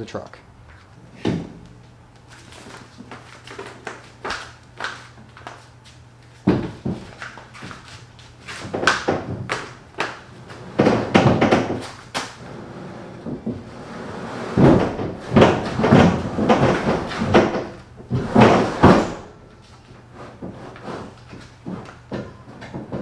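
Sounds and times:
metal frame clunking and scraping: 12.6s - 23.0s.

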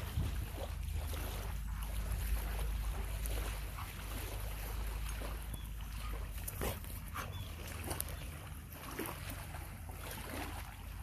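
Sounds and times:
wind rumbling on microphone: 0.0s - 5.6s.

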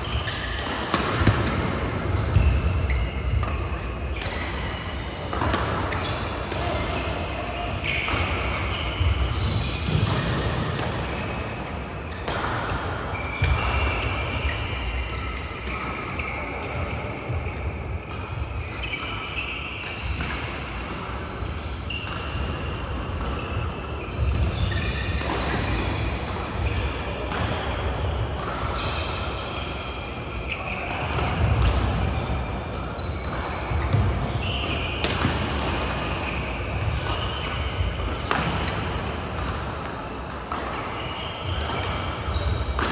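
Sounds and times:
shoes squeaking on court: 0.0s - 10.4s, 13.1s - 20.0s, 23.1s - 27.0s, 28.4s - 38.8s, 40.5s - 42.9s
rackets hitting shuttlecocks: 0.2s - 14.5s, 32.7s - 42.9s.

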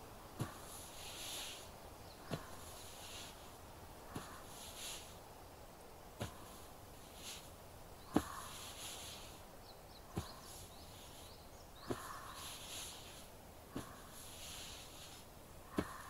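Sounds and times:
massage thumps: 0.0s - 1.2s, 2.2s - 3.2s, 8.1s - 8.6s, 10.1s - 10.6s, 13.7s - 14.2s, 15.7s - 16.0s
soft brushing hiss: 0.0s - 16.0s
hands rubbing shoulders: 6.1s - 9.4s, 10.1s - 16.0s.

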